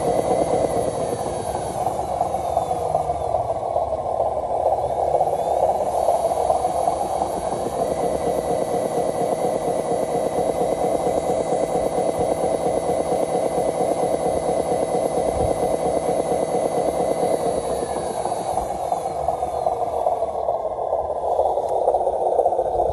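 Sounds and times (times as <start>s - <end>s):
motor whine: 0.0s - 22.9s
toy truck engine-like rumble: 0.0s - 22.9s.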